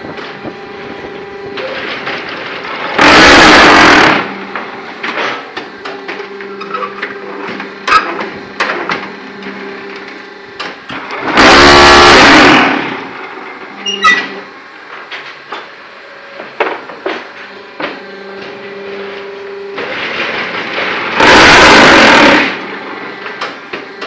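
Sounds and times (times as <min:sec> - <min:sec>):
machine humming: 0:00.0 - 0:24.0
loud buzzing burst: 0:02.9 - 0:04.5, 0:11.2 - 0:13.2, 0:20.9 - 0:23.0.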